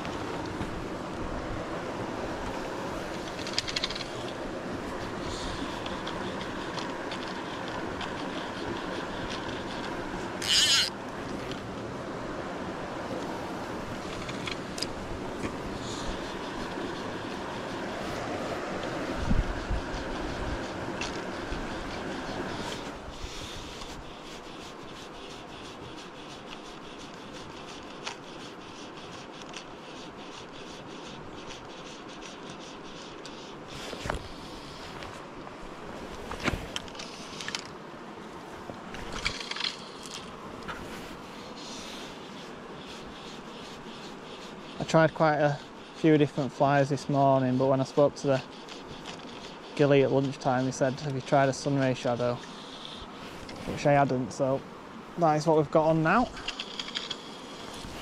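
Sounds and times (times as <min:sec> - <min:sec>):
river flowing over stones: 0:00.0 - 0:25.5
small river flowing: 0:00.0 - 0:58.0
fishing rod scratching and rubbing: 0:02.2 - 0:11.8, 0:13.2 - 0:35.2, 0:35.9 - 0:37.8, 0:39.0 - 0:54.4, 0:55.2 - 0:58.0.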